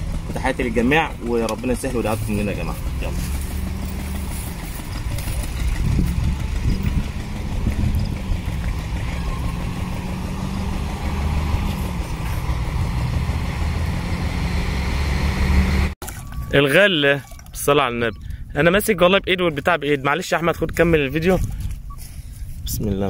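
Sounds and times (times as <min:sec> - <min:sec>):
truck diesel engine idling: 0:00.0 - 0:14.1.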